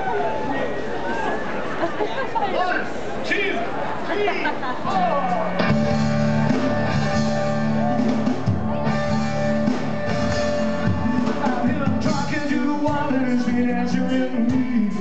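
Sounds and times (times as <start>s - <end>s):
drums: 4.7s - 15.0s
electric guitar: 5.2s - 15.0s
man singing into microphone: 10.9s - 15.0s.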